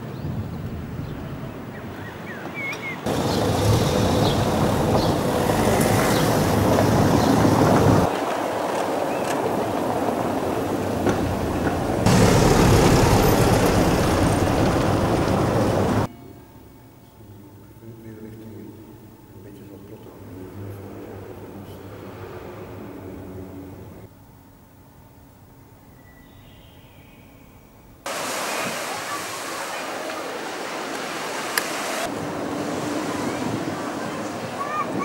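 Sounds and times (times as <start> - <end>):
low street noise: 0.0 - 35.0
wind on microphone: 3.1 - 8.2, 32.1 - 35.0.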